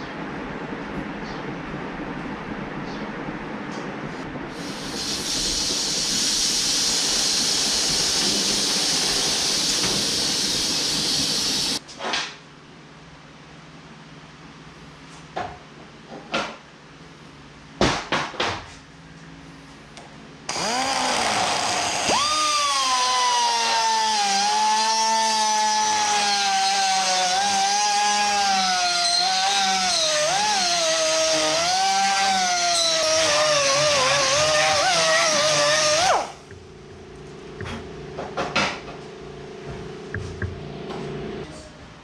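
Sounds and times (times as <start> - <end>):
pneumatic die grinder whining: 4.6 - 11.8, 20.5 - 36.4.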